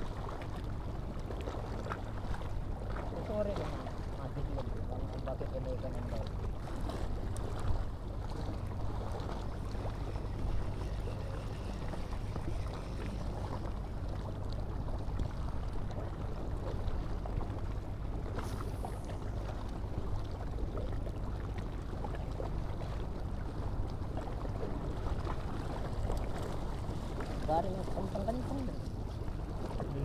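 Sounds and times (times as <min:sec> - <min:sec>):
water lapping against stone: 0:00.0 - 0:23.0.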